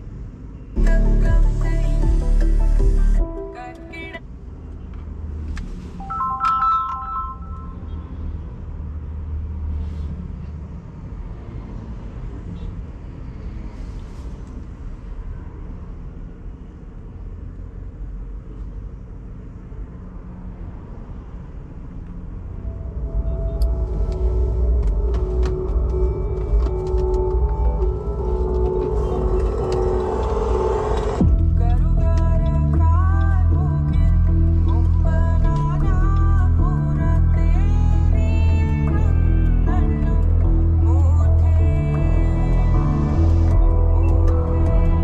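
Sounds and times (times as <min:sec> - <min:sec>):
road and tyre rumble: 0:00.0 - 0:45.0
music from car audio: 0:00.8 - 0:04.2, 0:05.5 - 0:07.8, 0:22.8 - 0:45.0
car chime: 0:06.0 - 0:07.9.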